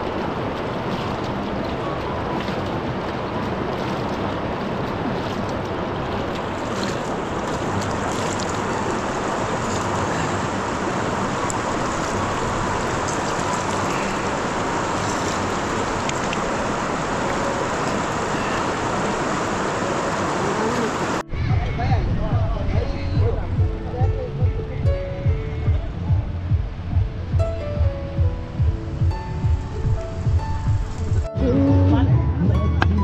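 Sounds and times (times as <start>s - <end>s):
river rushing over stones: 0.0s - 21.8s.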